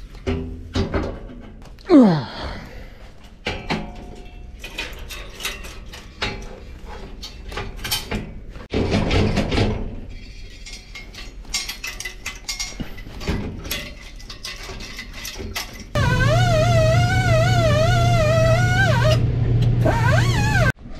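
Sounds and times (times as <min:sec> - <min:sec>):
loud noisy burst: 0:16.0 - 0:20.8.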